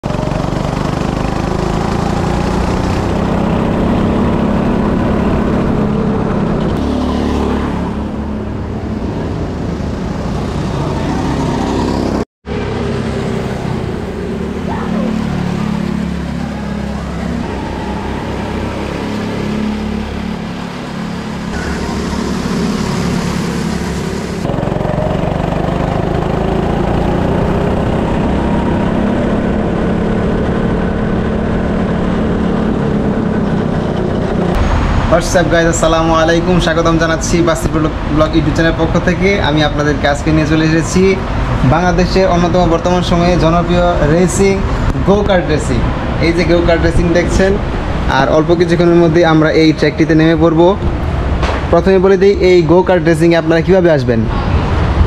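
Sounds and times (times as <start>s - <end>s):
go-kart engine under throttle: 0.0s - 8.2s, 10.8s - 35.1s.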